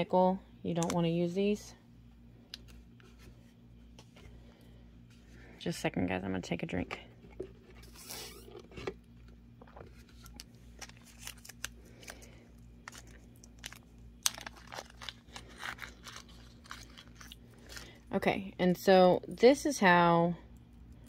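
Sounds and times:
low electrical hum: 0.0 - 21.0
plastic bag rustling: 7.2 - 18.0.

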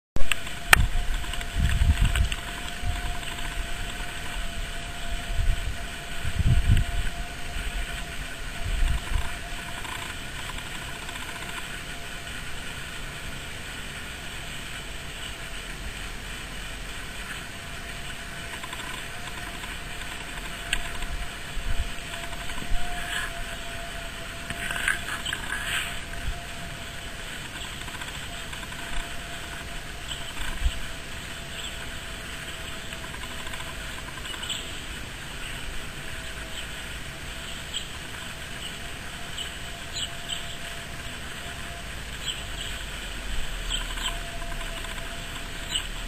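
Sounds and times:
low rumbles on microphone: 0.2 - 9.4
faint whine: 0.2 - 46.0
steady hiss: 0.2 - 46.0.

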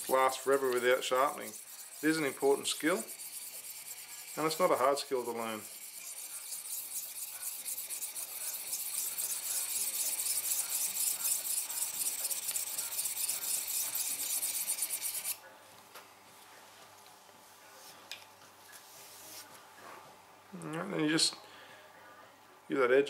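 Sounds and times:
knife scraping on sharpening file: 0.0 - 15.4.

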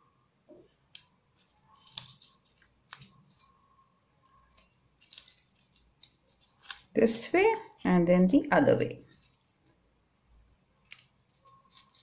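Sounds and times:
scissors snipping paper: 0.9 - 3.6, 4.2 - 7.0, 9.1 - 9.6, 10.8 - 12.0.

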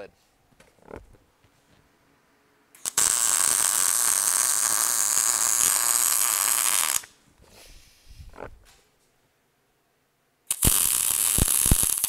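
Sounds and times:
welding arc crackling hiss: 2.8 - 7.2, 10.5 - 12.0.

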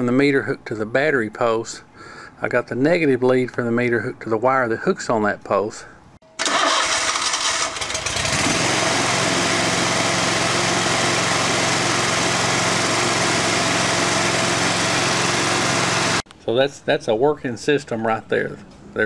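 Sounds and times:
mower engine starting and running: 6.4 - 16.2.

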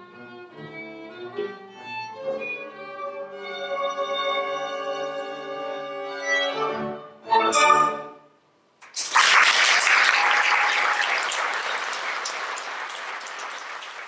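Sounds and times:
audience applause: 8.8 - 14.0.

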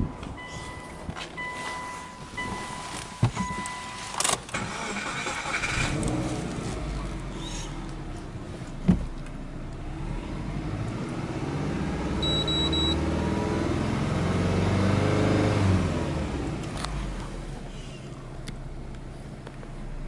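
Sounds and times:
car engine revving: 4.5 - 8.2, 9.5 - 17.6
quick high beeps: 12.2 - 13.0.

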